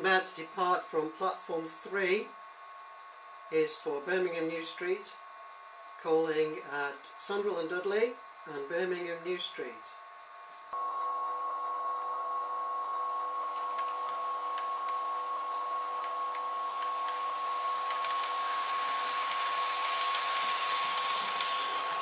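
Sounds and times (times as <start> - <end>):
model train motor whine: 11.6 - 22.0.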